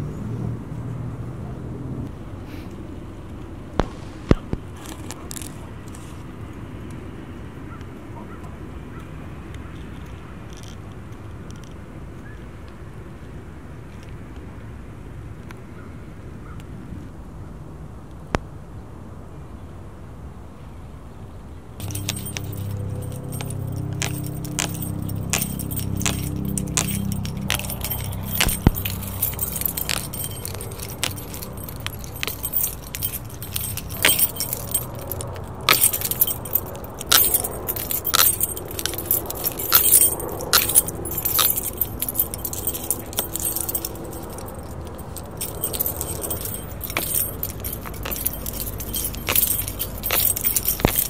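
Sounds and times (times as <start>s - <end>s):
keys jangling: 21.8s - 51.0s.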